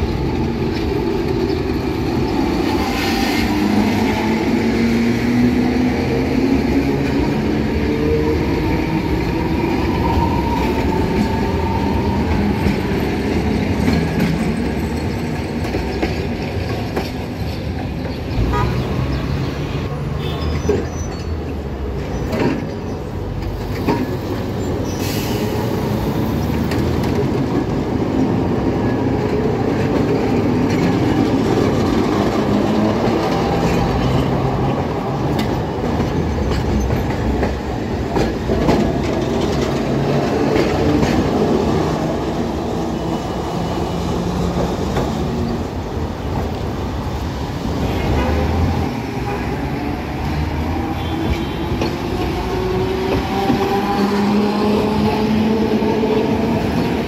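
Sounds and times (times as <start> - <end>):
tram wheels rumbling on track: 0.0 - 57.0.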